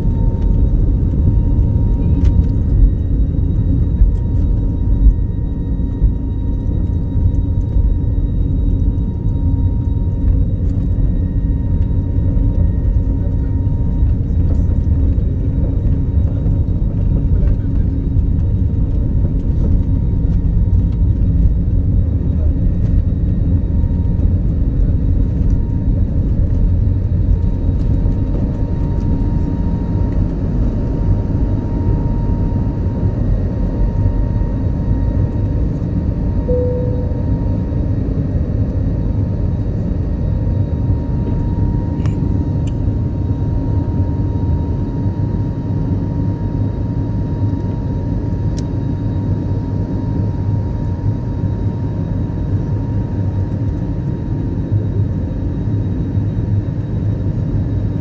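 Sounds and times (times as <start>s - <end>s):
faint engine whine: 0.0s - 58.0s
short tone: 36.5s - 38.0s.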